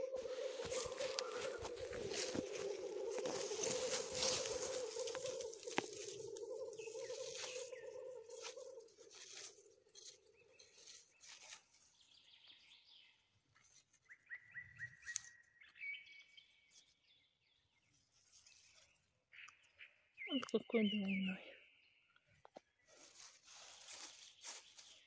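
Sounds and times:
dry leaves rustling: 0.0 - 12.7, 13.5 - 14.2, 17.9 - 19.1, 22.9 - 25.0
bird chirping: 0.0 - 25.0.

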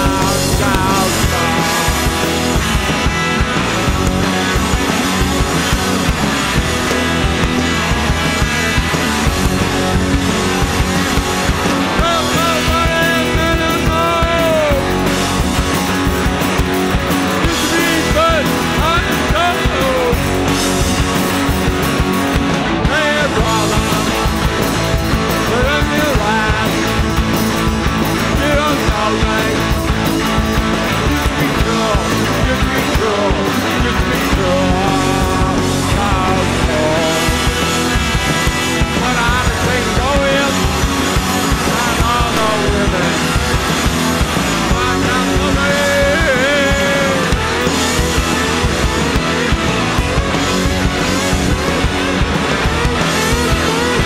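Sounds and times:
person singing: 0.0 - 2.6, 12.0 - 15.1, 17.4 - 20.4, 22.8 - 24.6, 25.3 - 27.0, 28.2 - 29.9, 31.0 - 37.9, 38.8 - 40.8, 41.5 - 43.6, 44.5 - 47.4
rock band playing live: 0.0 - 54.0.

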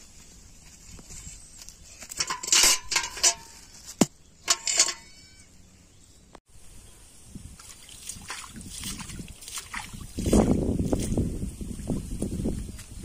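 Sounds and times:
metal bucket clanking: 2.2 - 3.6, 4.4 - 5.2.

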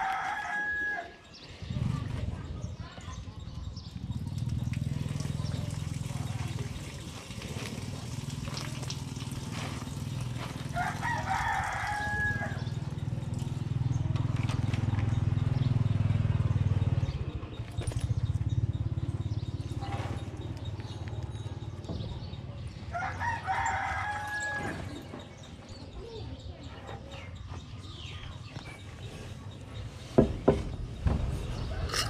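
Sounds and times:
rooster crowing: 0.0 - 1.3, 10.7 - 12.7, 22.9 - 25.0.

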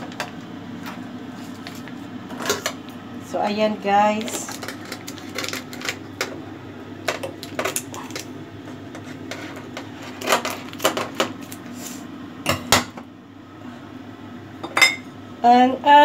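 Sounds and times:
dishes and utensils clinking: 14.6 - 15.1.

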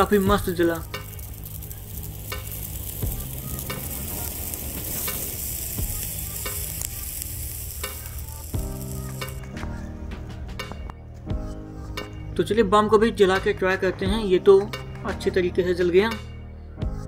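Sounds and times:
firework fizzing hiss: 0.0 - 9.7
sharp crackles: 0.0 - 9.8.

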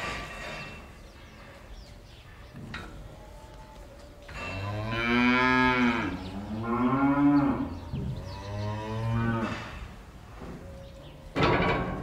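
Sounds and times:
cow mooing: 4.5 - 9.8.

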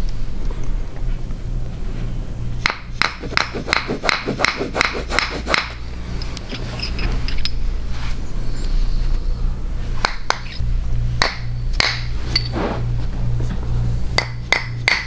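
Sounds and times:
mallet tapping metal tool: 11.2 - 12.1, 14.2 - 15.0.

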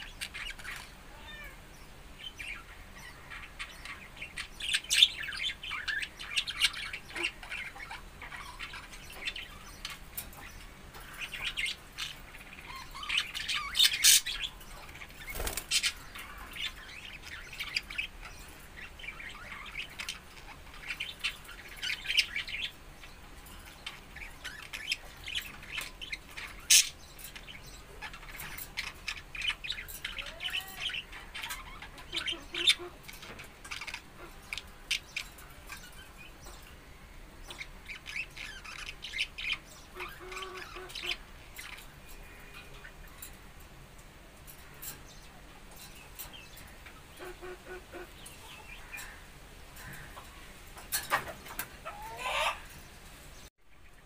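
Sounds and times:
budgerigars chattering: 2.3 - 36.6, 37.5 - 43.3.

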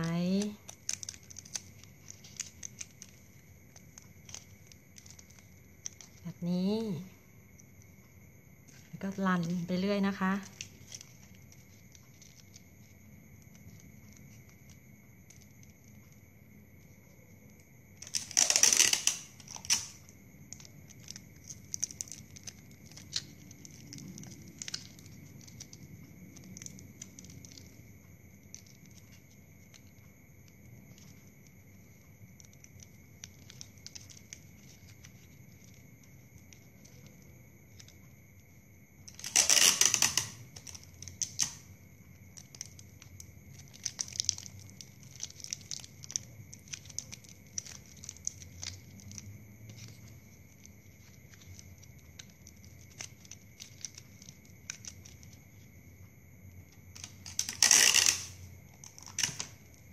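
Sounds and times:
plastic straws rustling: 0.0 - 8.0, 8.6 - 17.0, 17.6 - 55.8, 56.6 - 59.9
tape ripping off roll: 18.0 - 20.0, 39.1 - 41.7, 57.0 - 59.6.

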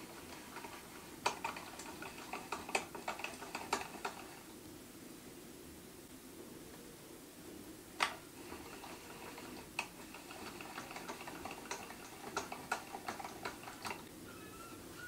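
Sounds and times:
lathe handwheel clicking: 0.0 - 4.5, 8.0 - 14.1.

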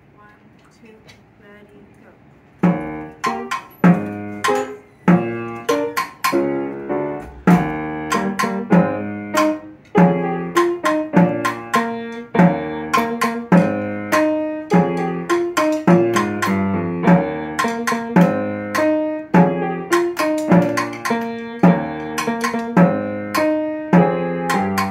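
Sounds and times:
recorded musical accompaniment: 2.6 - 24.9
snare drum played in rhythm: 7.3 - 24.9.

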